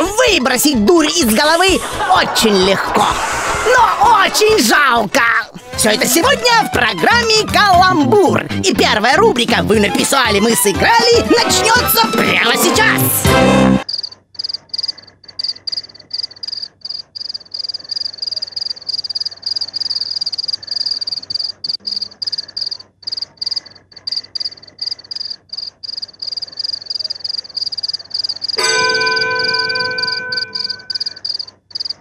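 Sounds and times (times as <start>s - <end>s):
crickets chirping: 13.8s - 28.6s, 30.3s - 32.0s
bell-like chime ringing: 28.6s - 31.2s.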